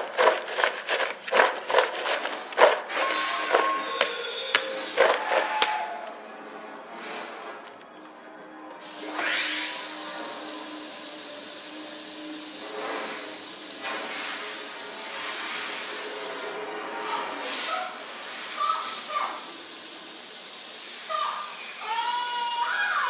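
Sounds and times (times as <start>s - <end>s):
water running from tap: 8.8s - 16.5s, 18.0s - 23.0s.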